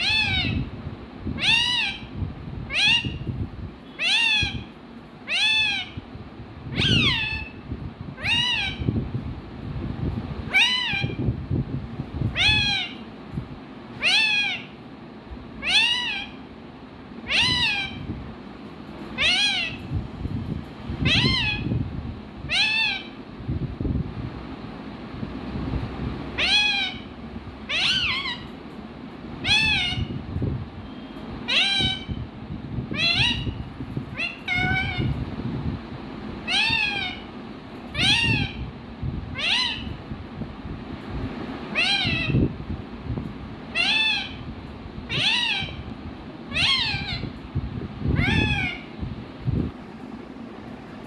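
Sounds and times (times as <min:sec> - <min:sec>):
parakeet calling: 0:00.0 - 0:00.7, 0:01.4 - 0:06.0, 0:06.7 - 0:07.6, 0:08.2 - 0:08.9, 0:10.5 - 0:11.2, 0:12.3 - 0:13.1, 0:14.0 - 0:14.8, 0:15.6 - 0:16.5, 0:17.2 - 0:18.1, 0:19.1 - 0:19.9, 0:21.0 - 0:21.8, 0:22.4 - 0:23.2, 0:26.3 - 0:28.6, 0:29.4 - 0:30.2, 0:30.8 - 0:32.2, 0:32.9 - 0:35.2, 0:36.4 - 0:38.7, 0:39.3 - 0:40.0, 0:41.7 - 0:42.5, 0:43.7 - 0:47.4, 0:48.1 - 0:49.0.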